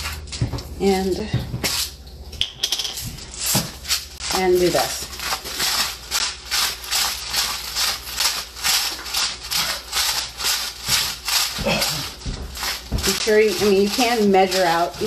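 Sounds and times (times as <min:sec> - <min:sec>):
hands rustling cabbage in a bowl: 0:03.2 - 0:15.0.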